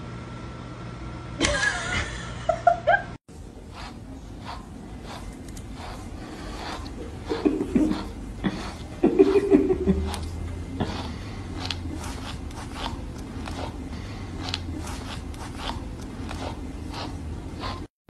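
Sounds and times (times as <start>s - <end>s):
rustling and handling noises: 3.6s - 17.9s.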